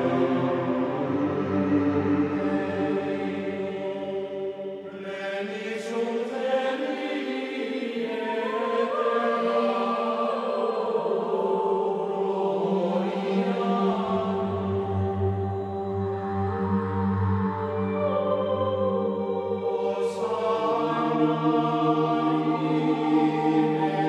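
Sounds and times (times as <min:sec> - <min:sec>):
voices chanting in long notes: 0:00.0 - 0:24.0.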